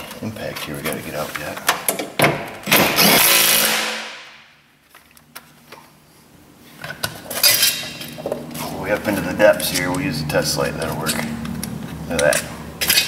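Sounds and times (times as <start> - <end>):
impact wrench whirring: 2.7 - 4.0.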